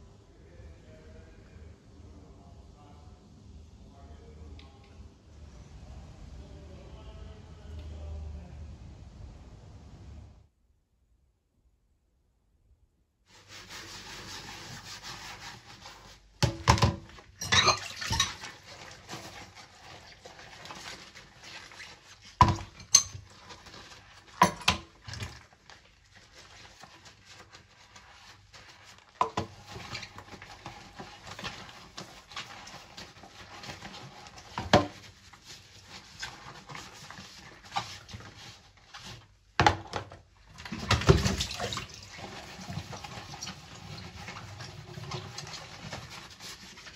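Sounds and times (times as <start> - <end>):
soft scrubbing: 13.3 - 16.4, 17.0 - 39.5, 40.6 - 46.9
water running: 13.5 - 39.0, 40.6 - 46.9
dishes clinking in a sink: 16.4 - 18.7, 22.4 - 23.6.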